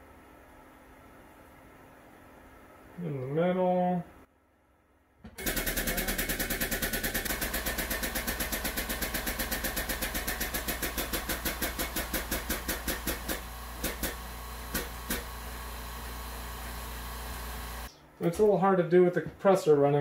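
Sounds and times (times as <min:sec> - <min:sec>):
air compressor pulsing: 0:05.3 - 0:17.9.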